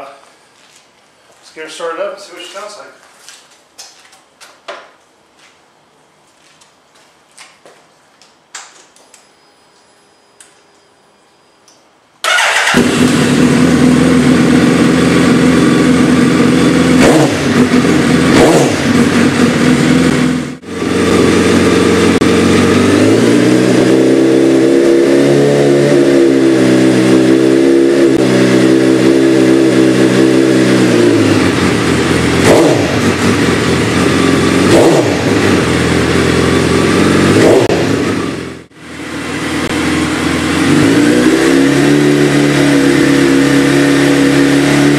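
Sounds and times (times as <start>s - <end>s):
motorcycle engine revving: 12.2s - 44.9s.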